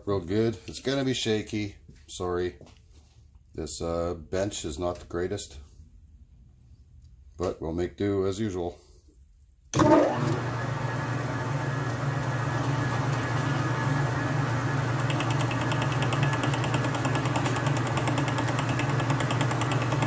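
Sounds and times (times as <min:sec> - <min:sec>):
metal lathe humming: 0:09.8 - 0:20.0
fast even ticking of cutter: 0:15.0 - 0:20.0.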